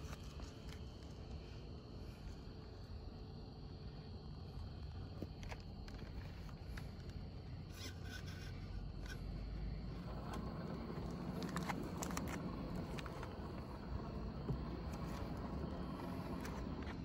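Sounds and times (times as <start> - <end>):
scrapes and clicks: 10.0 - 17.0.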